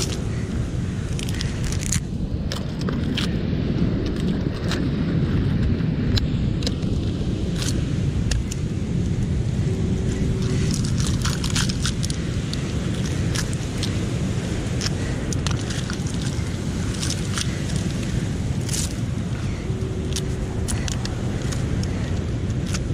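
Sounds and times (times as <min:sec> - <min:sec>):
steady low rumble: 0:00.0 - 0:22.9
mussel shells clicking: 0:01.2 - 0:03.3, 0:10.5 - 0:14.0, 0:14.7 - 0:19.0, 0:20.1 - 0:22.9.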